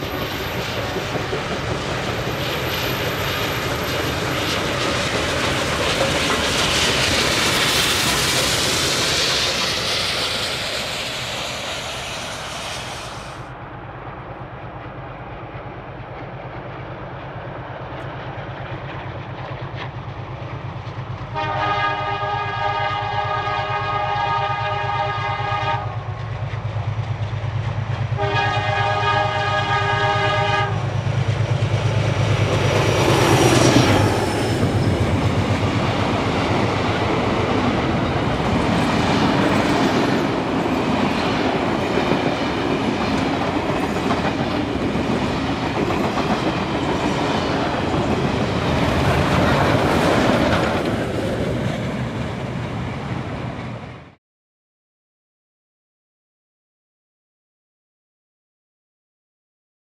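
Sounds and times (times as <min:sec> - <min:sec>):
steam locomotive passing: 0:00.0 - 0:54.2
train carriages clickety-clack: 0:00.0 - 0:54.2
steam locomotive whistle: 0:21.4 - 0:26.0, 0:28.2 - 0:30.8.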